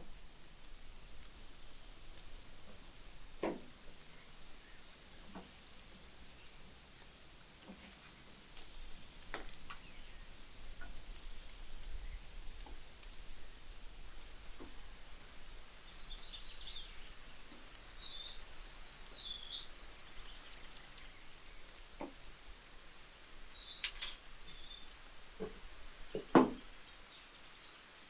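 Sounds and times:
faint bird chirps: 15.9s - 21.7s, 23.4s - 24.9s
light knocks and taps: 22.0s - 22.2s, 25.4s - 26.6s.

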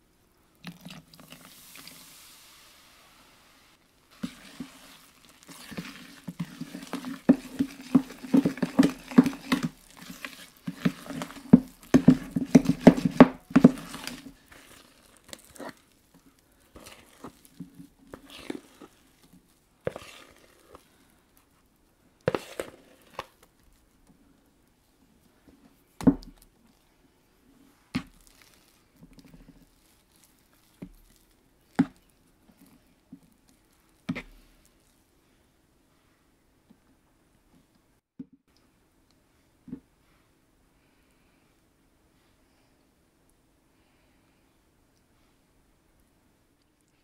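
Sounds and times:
spoon stirring batter in bowl: 4.0s - 21.7s, 22.3s - 23.8s
spoon scraping bowl: 4.1s - 15.8s, 16.8s - 19.2s, 19.9s - 20.9s, 22.3s - 23.2s.

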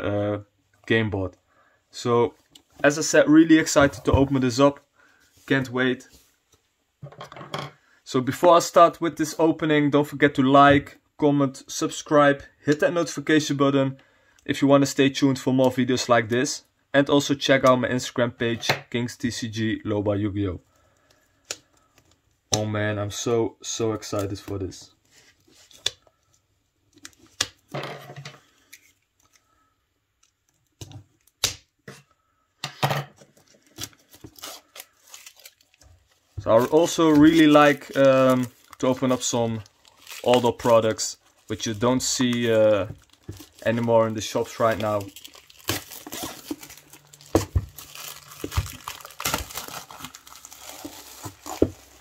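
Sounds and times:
shrink-wrap crackling: 33.6s - 52.0s.

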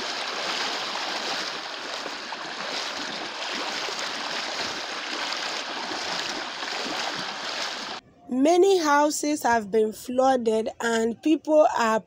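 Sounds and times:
floodwater rushing: 0.0s - 8.0s.

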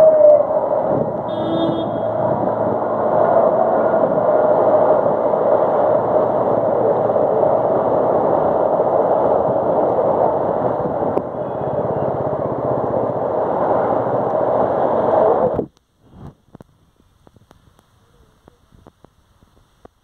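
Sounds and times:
heavy rain on street: 0.0s - 20.0s
traffic driving through water: 0.3s - 15.6s.

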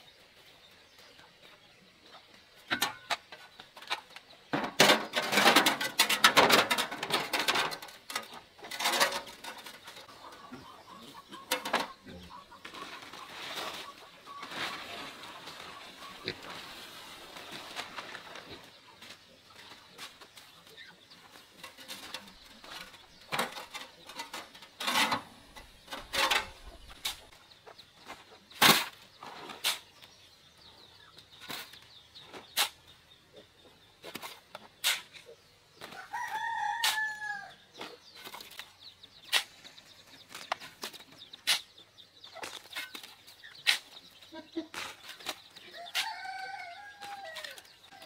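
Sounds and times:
rooster crowing: 36.1s - 37.5s, 45.8s - 47.6s.

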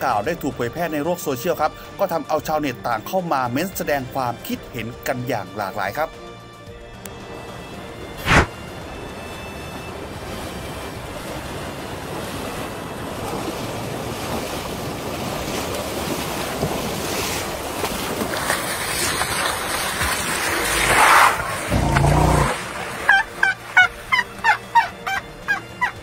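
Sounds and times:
floodwater rushing: 7.1s - 26.0s
elephants splashing through water: 8.0s - 24.8s.

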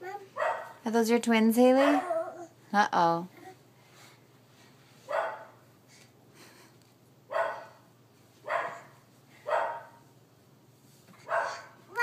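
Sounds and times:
dog barking: 0.4s - 0.8s, 5.1s - 5.6s, 7.3s - 7.8s, 8.5s - 10.0s, 11.2s - 11.8s.

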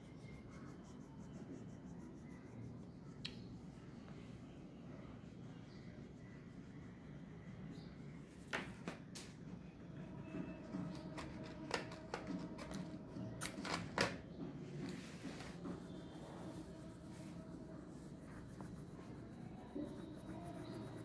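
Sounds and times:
oil pastel rubbing on paper: 0.2s - 3.0s, 14.9s - 21.0s.

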